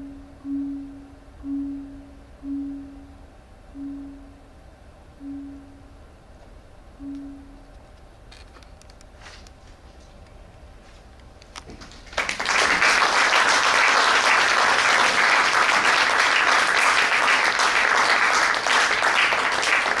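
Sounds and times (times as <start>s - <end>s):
audience applause: 12.1s - 20.0s.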